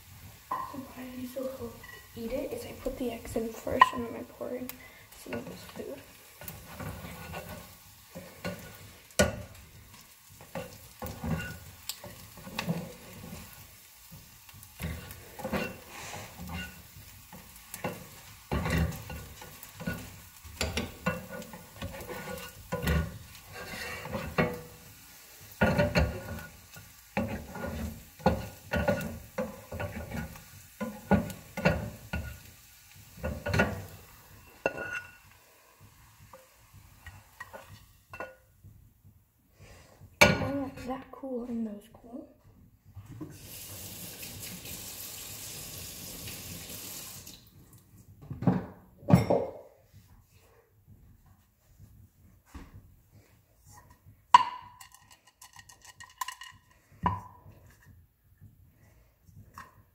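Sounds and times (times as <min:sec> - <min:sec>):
utensil scraping frying pan: 0:00.0 - 0:38.5, 0:53.7 - 0:58.0
faint frying sizzle: 0:00.0 - 0:48.5.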